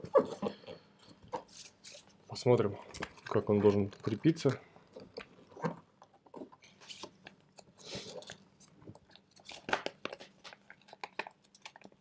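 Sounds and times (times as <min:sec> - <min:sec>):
paper folding and creasing: 0:00.0 - 0:02.2, 0:02.9 - 0:08.7.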